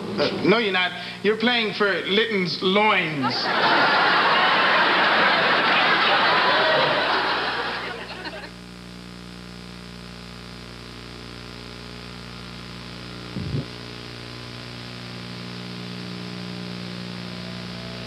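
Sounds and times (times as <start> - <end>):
electrical hum with hiss: 0.0 - 18.0.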